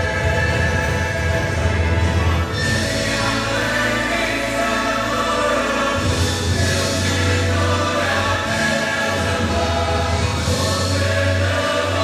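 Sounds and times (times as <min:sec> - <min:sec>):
mixed choir singing: 0:00.0 - 0:12.0.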